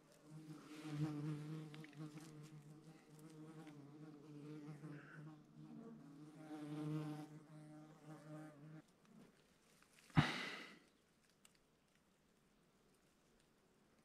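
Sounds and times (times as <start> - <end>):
flying insect buzzing: 0.2 - 8.8.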